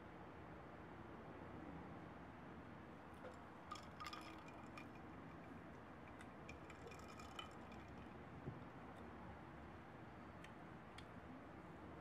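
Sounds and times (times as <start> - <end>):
ice cubes clinking in glass: 3.7 - 5.1, 6.5 - 8.0.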